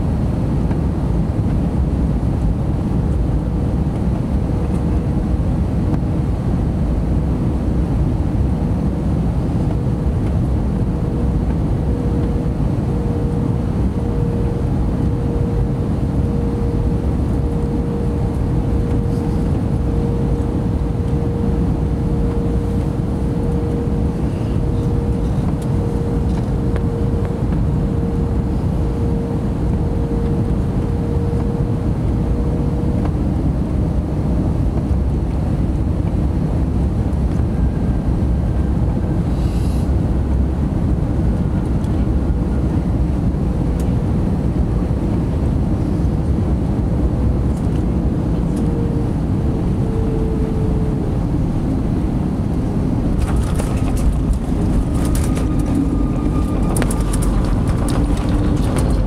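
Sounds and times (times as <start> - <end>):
jet engines droning: 0.0 - 59.0
mid-pitched hum: 0.0 - 59.0
airflow rushing: 48.0 - 59.0.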